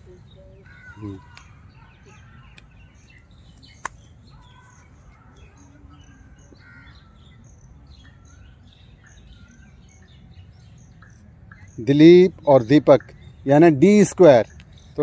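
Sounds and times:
crows calling: 0.0 - 3.6, 4.2 - 10.2
birds chirping: 0.0 - 15.0.

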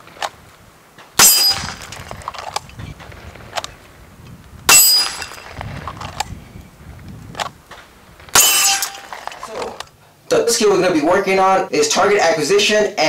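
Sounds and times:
handgun shots: 1.2 - 1.9, 8.4 - 9.7.

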